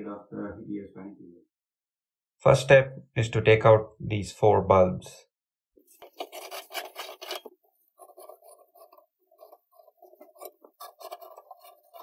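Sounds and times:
cloth rubbing on glass: 0:05.8 - 0:12.0
bulb bases grating in sockets: 0:05.9 - 0:12.0.

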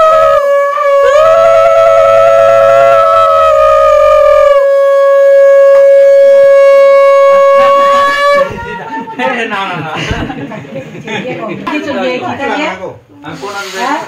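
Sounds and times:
conch shell blown: 0:00.0 - 0:08.6.

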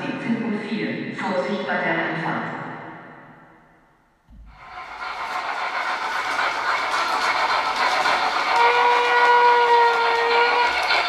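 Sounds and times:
model train wheels clicking: 0:04.4 - 0:11.0
train whistle: 0:07.5 - 0:11.0.

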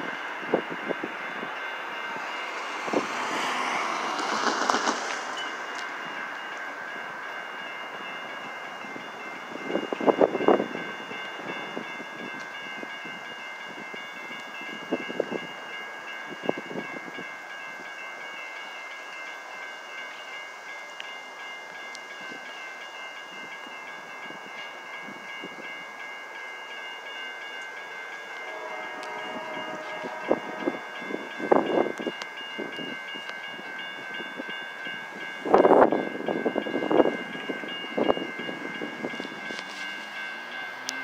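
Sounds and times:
railroad crossing bell ringing: 0:00.0 - 0:41.0
distant locomotive air horn: 0:28.3 - 0:31.6.

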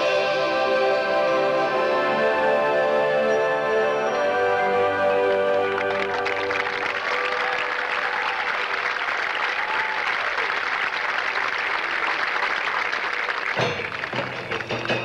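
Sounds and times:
brass and percussion band: 0:00.0 - 0:08.2, 0:13.0 - 0:15.0
crowd applauding and cheering: 0:04.2 - 0:15.0
voices whooping: 0:06.5 - 0:10.7.

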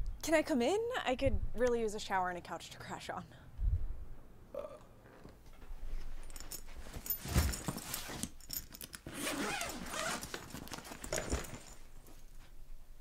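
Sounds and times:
fabric rustling: 0:05.6 - 0:12.6
zipper rasping: 0:07.0 - 0:11.7.

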